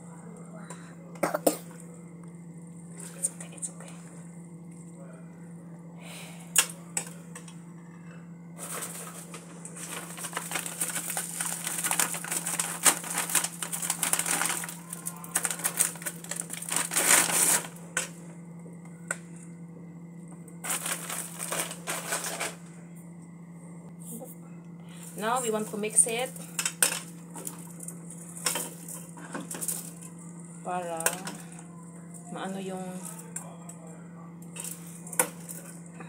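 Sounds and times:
plastic pack crinkling: 0:08.6 - 0:17.7, 0:20.6 - 0:22.6
dry noodles crackling in metal pan: 0:08.6 - 0:18.1.

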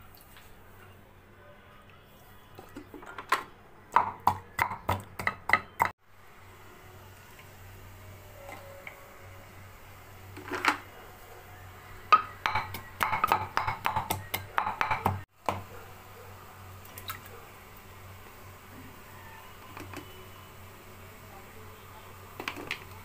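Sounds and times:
knocks on bowl and pot: 0:12.2 - 0:15.6.

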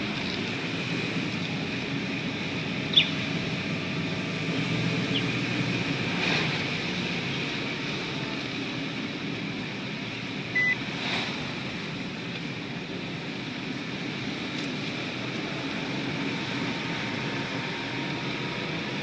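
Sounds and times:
car road and engine noise: 0:00.0 - 0:19.0
short high beep: 0:10.6 - 0:10.8.

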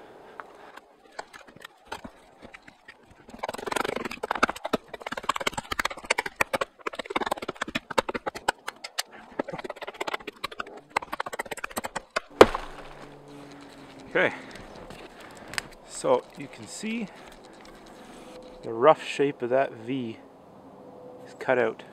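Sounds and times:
hatchet chopping wood: 0:03.6 - 0:13.2.

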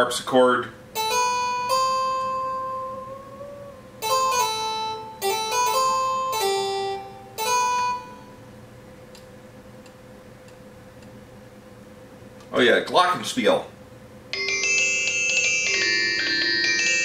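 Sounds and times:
harpsichord notes from small speaker: 0:01.0 - 0:03.0, 0:04.0 - 0:08.2, 0:14.3 - 0:17.0.

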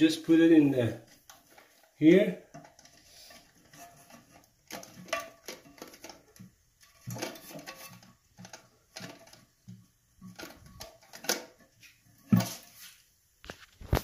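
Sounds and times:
plastic parts clicking on toilet tank: 0:02.4 - 0:12.6.

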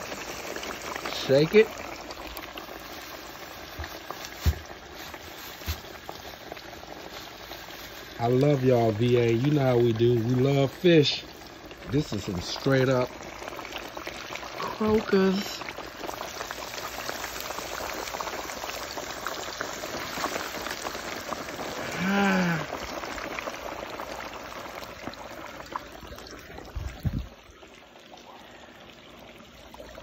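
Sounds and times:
fish deep-frying in hot oil: 0:00.0 - 0:30.0
drawn-out voice sound: 0:21.8 - 0:22.8.

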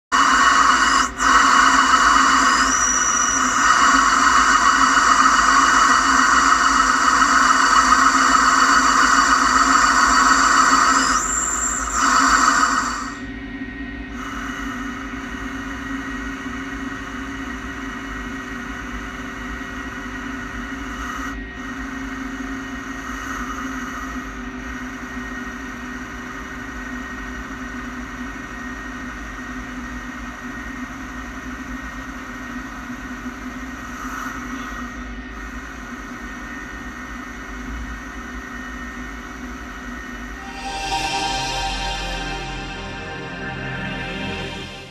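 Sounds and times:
lathe machine hum: 0:00.2 - 0:13.2, 0:40.2 - 0:44.9
spindle whining tones: 0:01.0 - 0:18.6, 0:40.2 - 0:44.9.

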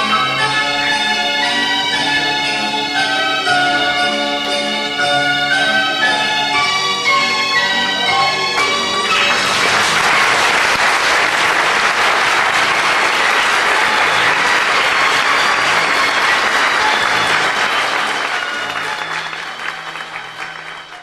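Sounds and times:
audience applauding: 0:08.0 - 0:21.0.

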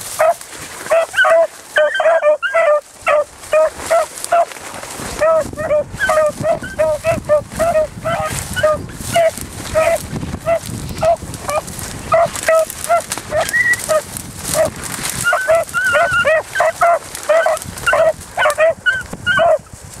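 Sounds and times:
dry brush crackling: 0:00.0 - 0:20.0
dogs barking: 0:00.1 - 0:04.6, 0:05.2 - 0:19.7.

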